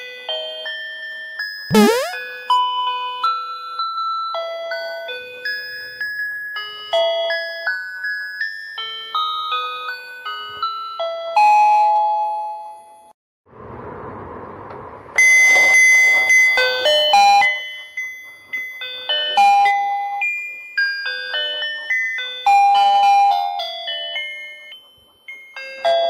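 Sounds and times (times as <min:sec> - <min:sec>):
electronic beeping toy melody: 0:01.7 - 0:02.2.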